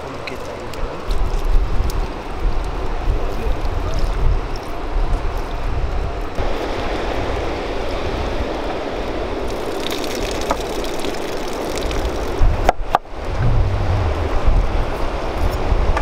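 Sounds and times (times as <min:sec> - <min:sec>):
wind rumbling on microphone: 0:00.9 - 0:08.6, 0:11.9 - 0:16.0.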